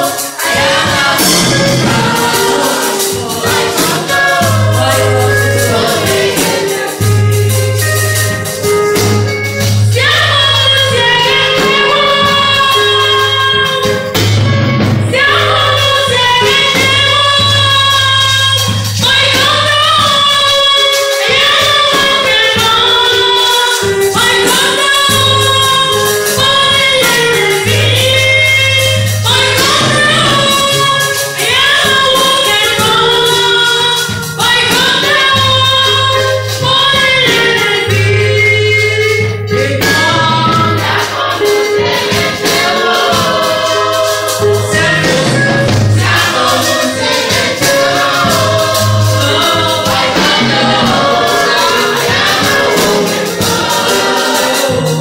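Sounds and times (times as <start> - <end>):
women singing in group: 0.0 - 7.4, 9.9 - 14.0, 15.1 - 55.0
woman singing into microphone: 0.0 - 8.0, 9.6 - 14.1, 15.0 - 55.0
steady percussion: 0.0 - 55.0
low bass line: 0.6 - 6.4.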